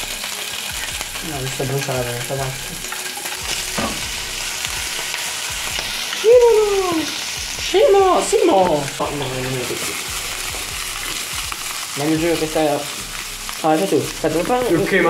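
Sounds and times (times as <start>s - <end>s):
oil sizzling in a frying pan: 0.0s - 15.0s
person calling out loudly: 6.2s - 7.2s.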